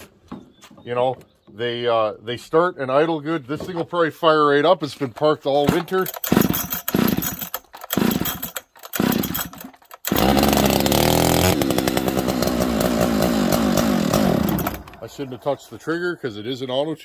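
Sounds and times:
chainsaw pull-start: 0:05.6 - 0:15.3
chainsaw revving and idling: 0:05.7 - 0:15.4.

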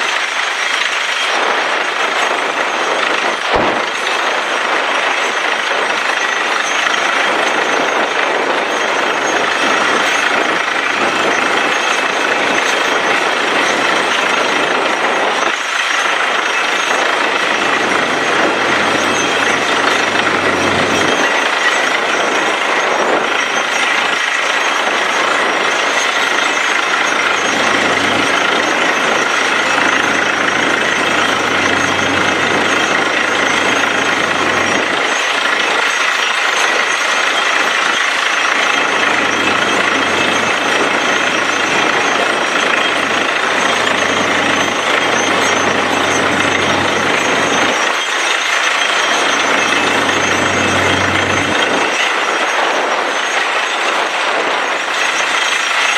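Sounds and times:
air blasting water and rock: 0:00.0 - 0:52.6
drilling rig hammering: 0:00.0 - 0:54.1, 0:54.7 - 0:55.9.

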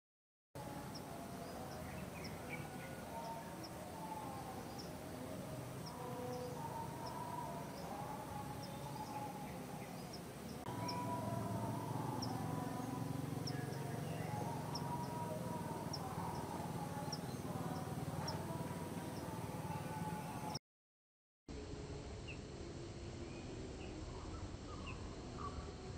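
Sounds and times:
steady low hum: 0:00.6 - 0:20.6
wavering middle tones: 0:00.8 - 0:20.6.

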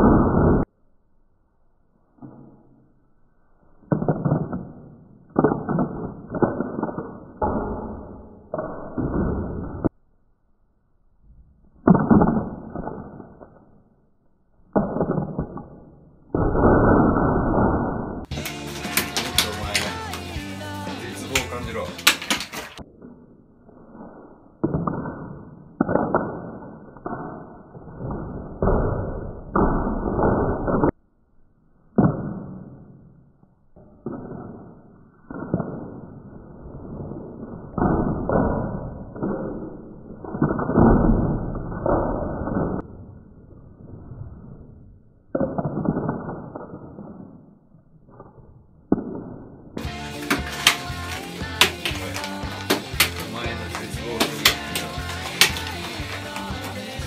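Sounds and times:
peanuts hitting a person: 0:49.8 - 0:57.0.

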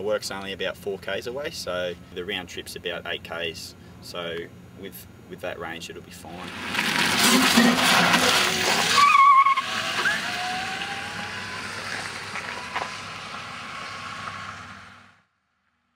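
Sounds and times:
electric car whine: 0:06.4 - 0:15.2
car passing tyre and road noise: 0:06.4 - 0:15.4.

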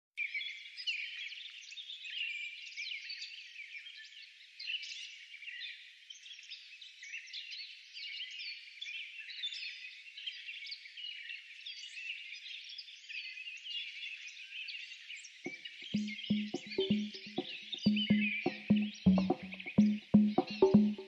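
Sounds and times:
high-pitched chirps and whistling calls: 0:16.0 - 0:21.0.

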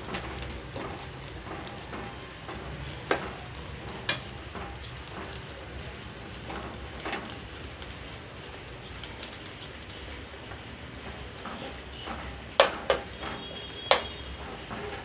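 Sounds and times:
food sizzling in a pan: 0:00.0 - 0:14.7
spoon knocking against pan: 0:12.6 - 0:14.2.

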